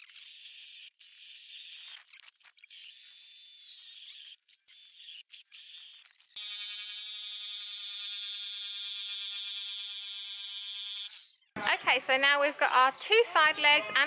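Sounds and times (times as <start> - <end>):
jigsaw cutting board: 0.0 - 11.4
cordless drill boring into board: 2.6 - 11.4.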